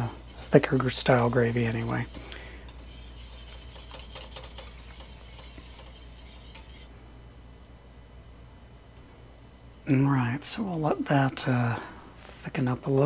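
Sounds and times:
whisk scraping in saucepan: 0.0s - 6.9s.

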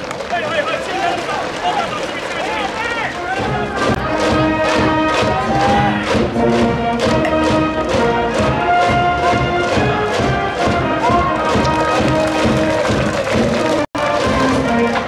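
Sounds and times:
brass band playing: 3.1s - 15.0s
steady drum beat: 3.3s - 14.9s.

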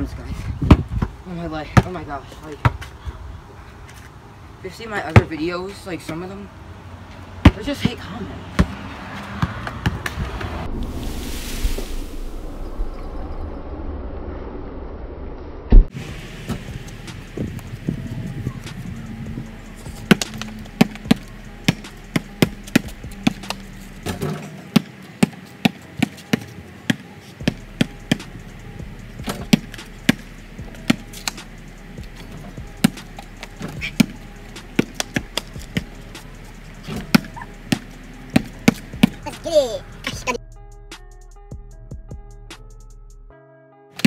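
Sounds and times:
basketball bouncing on pavement: 0.6s - 3.0s, 5.0s - 6.2s, 7.3s - 10.6s, 15.8s - 39.5s.

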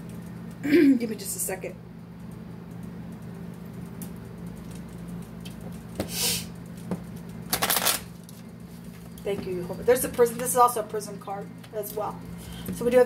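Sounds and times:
low steady hum: 0.0s - 13.0s
cards rustling: 7.5s - 8.4s.

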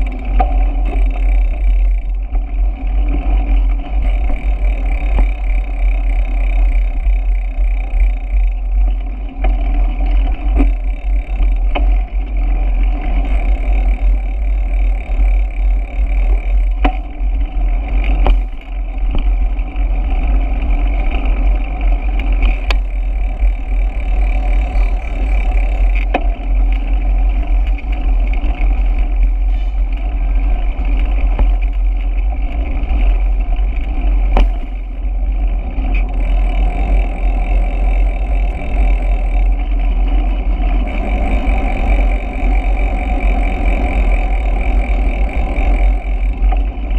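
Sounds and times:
bicycle road noise: 0.0s - 46.9s
wind rumble: 0.0s - 46.9s
sharp knocks from bumps: 18.2s - 19.3s, 34.3s - 34.7s.

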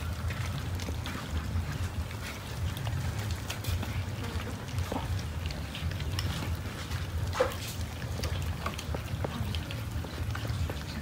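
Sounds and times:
cats chewing and lapping: 0.0s - 11.0s.

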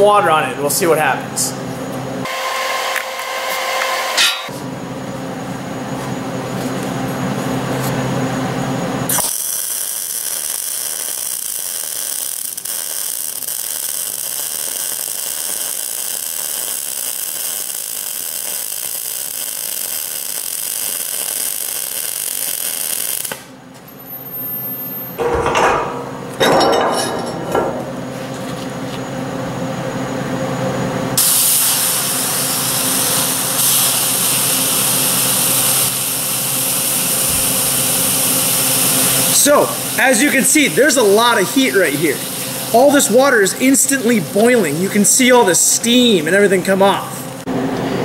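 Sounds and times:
welding machine humming: 1.7s - 48.0s
welding arc hissing: 2.2s - 4.6s, 9.0s - 23.6s, 31.2s - 47.5s.

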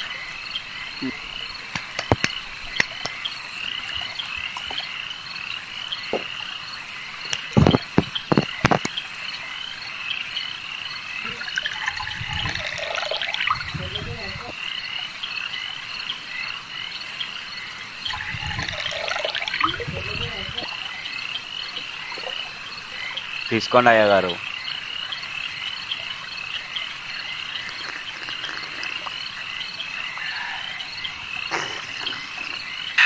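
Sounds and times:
frogs croaking in chorus: 0.0s - 33.0s
liquid being poured: 11.2s - 14.6s, 18.1s - 21.0s, 27.2s - 32.6s.

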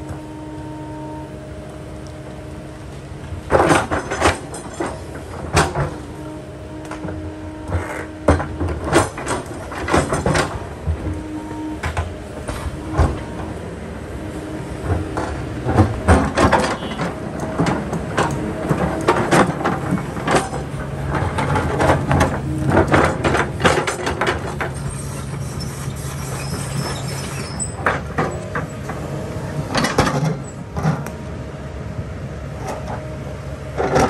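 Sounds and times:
excavator engine running: 0.0s - 34.0s.

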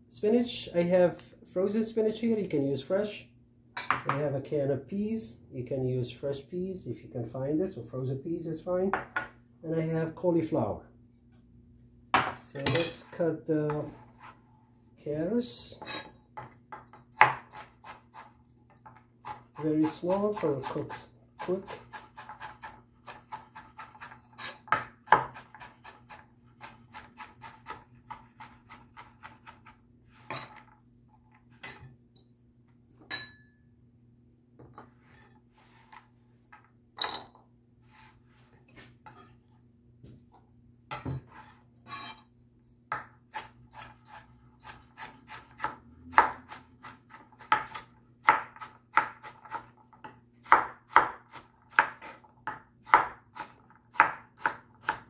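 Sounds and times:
knife chopping on plastic board: 16.4s - 18.0s, 20.4s - 29.8s, 45.0s - 55.0s.

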